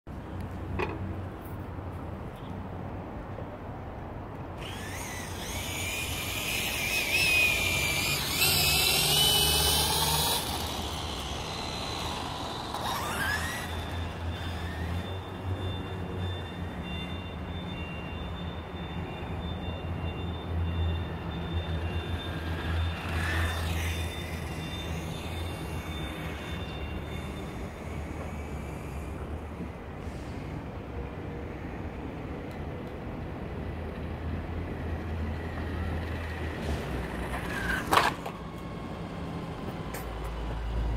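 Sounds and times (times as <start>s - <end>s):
toy motorcycle motor whining: 4.6s - 15.5s, 21.7s - 29.6s, 36.8s - 40.7s.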